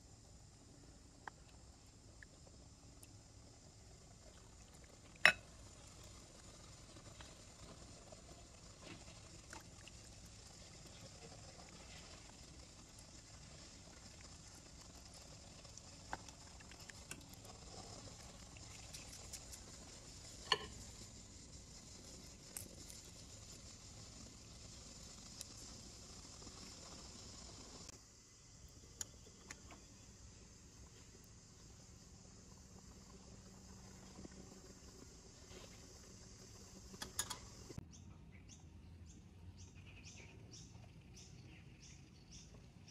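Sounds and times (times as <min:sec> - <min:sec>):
small bird chirping: 0:37.5 - 0:42.9.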